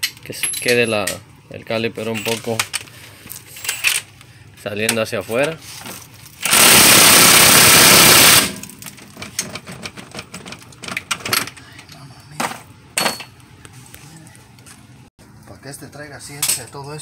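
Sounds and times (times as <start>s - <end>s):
impact wrench burst: 6.4s - 8.7s.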